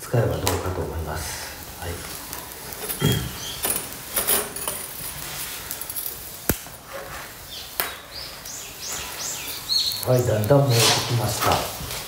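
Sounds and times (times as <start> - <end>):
birds chirping faintly: 0.0 - 12.0
fire crackling: 0.0 - 12.0
fire popping: 0.0 - 12.0
loud crack: 1.4 - 7.1.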